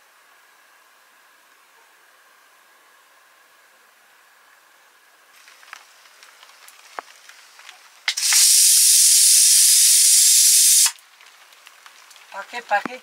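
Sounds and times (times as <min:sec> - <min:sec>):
steam hissing from a pot: 0:05.3 - 0:11.0.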